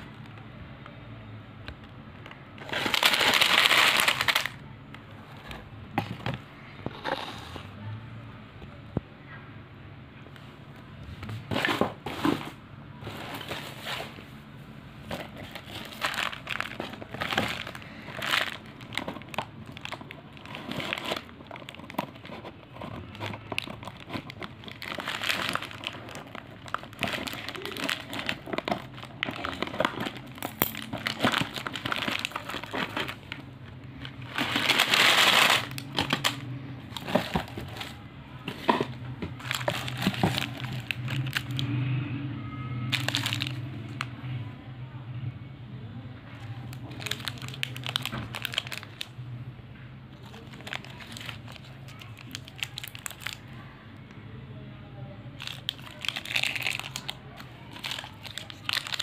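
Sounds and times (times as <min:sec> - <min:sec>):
plastic wrappers crinkling: 0:01.8 - 0:04.7, 0:15.0 - 0:41.7, 0:42.9 - 0:44.1, 0:46.4 - 0:49.2, 0:50.2 - 0:53.5, 0:55.4 - 0:59.0
candies tipped out of box: 0:34.0 - 0:41.6, 0:42.9 - 0:43.6.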